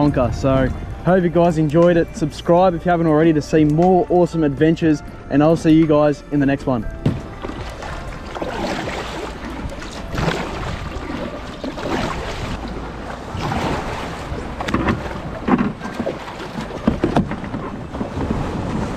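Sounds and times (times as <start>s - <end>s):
wind buffeting microphone: 0.0s - 3.0s, 6.9s - 18.9s
paddle strokes splashing water: 7.1s - 18.9s.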